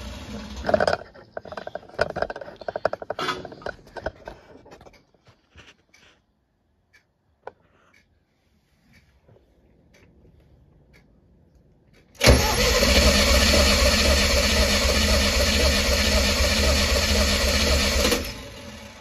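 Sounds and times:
engine cranking on starter: 0.0s - 3.8s, 12.2s - 19.0s.

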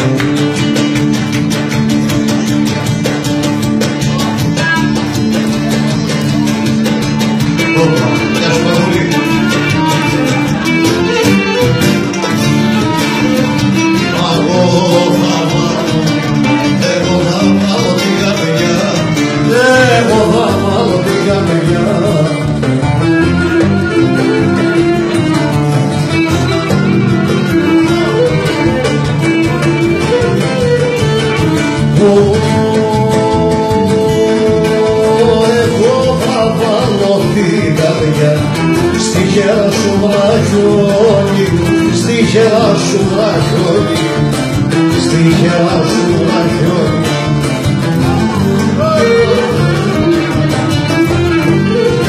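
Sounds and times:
lyra and lute playing: 0.0s - 52.0s
man singing into a microphone: 3.9s - 11.6s, 12.3s - 24.8s, 29.4s - 50.5s.

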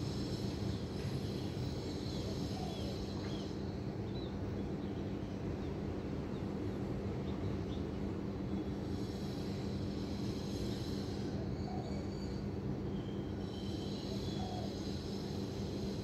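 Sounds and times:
low rumble of city traffic: 0.0s - 16.0s.

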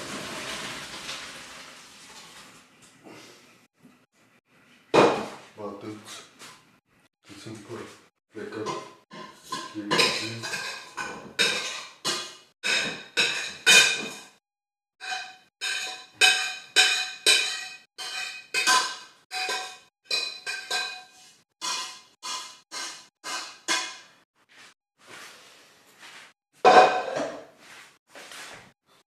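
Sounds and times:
metal kitchenware scraping and knocking: 8.4s - 14.4s, 15.0s - 24.2s, 26.7s - 27.5s.

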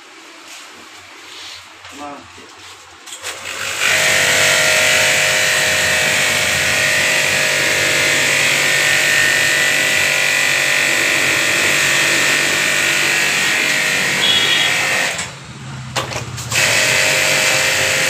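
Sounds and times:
pressure washer pump humming: 2.8s - 18.0s
high-pressure water jet hissing: 5.0s - 15.2s.

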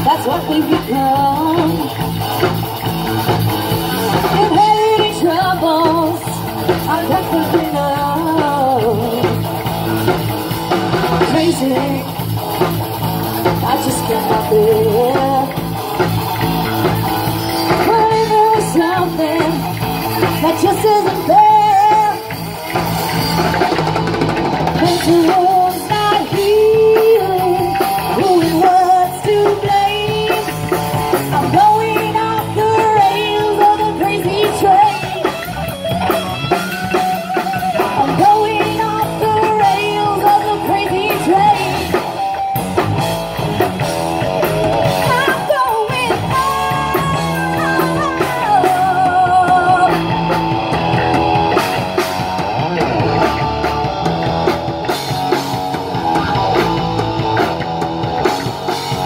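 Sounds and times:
female lead vocal: 0.0s - 2.5s, 3.9s - 9.7s, 11.1s - 12.3s, 13.4s - 16.1s, 17.6s - 22.5s, 24.8s - 35.6s, 37.4s - 42.2s, 44.8s - 50.4s
live rock band playing: 0.0s - 59.0s.

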